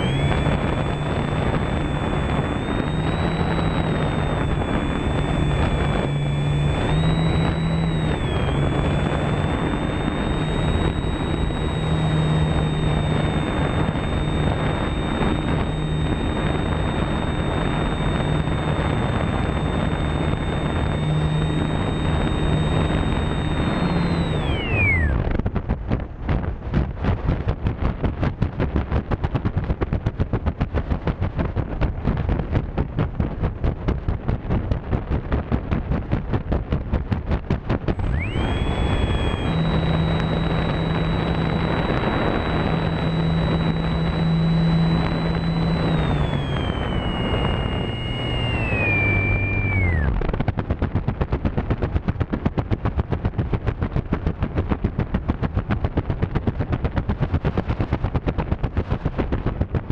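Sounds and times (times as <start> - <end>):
electric motor whine: 0.0 - 25.7, 37.4 - 50.7
propeller fluttering: 0.0 - 59.9.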